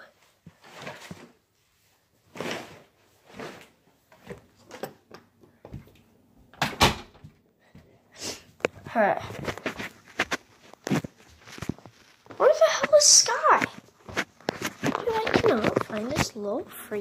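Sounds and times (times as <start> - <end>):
handling knocks and rustles: 8.5 - 16.6.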